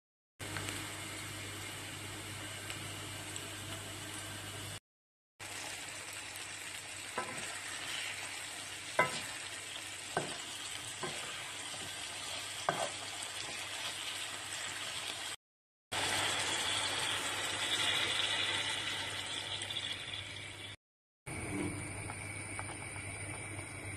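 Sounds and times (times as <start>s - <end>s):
vegetables sizzling in oil: 0.4s - 4.8s, 5.4s - 20.8s
wooden spoon knocking on pan: 10.2s - 11.3s
water poured into hot pan: 16.0s - 20.8s.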